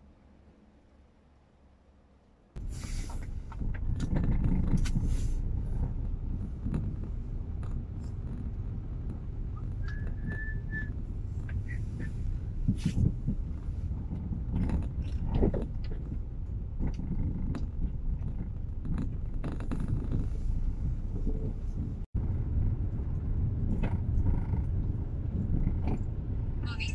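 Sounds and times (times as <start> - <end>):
car engine and road noise: 2.6 - 26.9
high whistle-like tone: 9.8 - 10.9.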